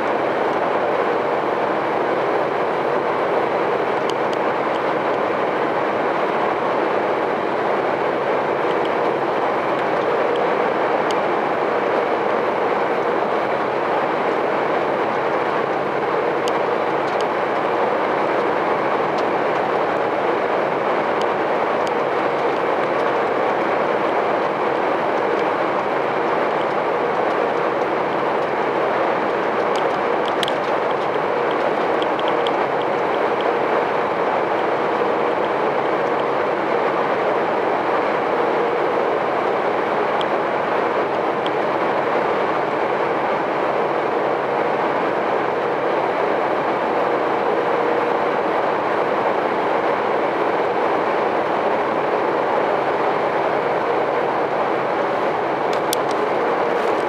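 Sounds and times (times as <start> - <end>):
faint steady hum: 0.0 - 57.0
lorry engine and tyre drone: 0.0 - 57.0
light ticks: 29.6 - 33.6.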